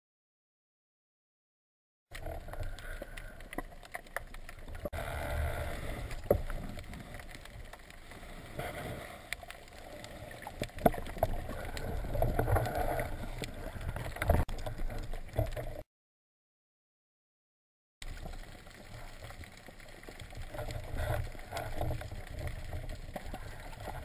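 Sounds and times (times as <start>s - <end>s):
sharp underwater clicks and knocks: 2.1s - 4.9s, 5.9s - 15.8s, 18.0s - 24.0s
underwater rumble of moving water: 2.1s - 15.8s, 18.0s - 24.0s.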